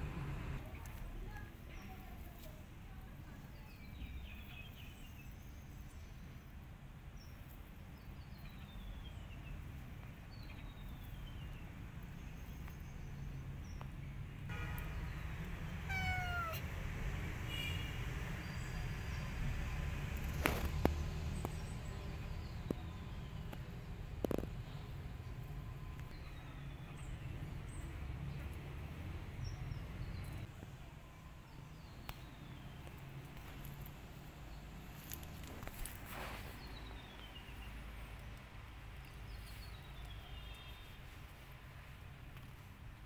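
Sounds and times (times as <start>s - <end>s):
cat meowing: 15.7s - 16.7s.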